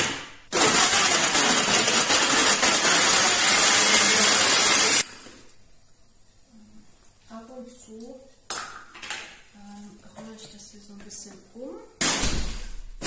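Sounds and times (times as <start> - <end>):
blender crushing frozen fruit: 0.0 - 5.0.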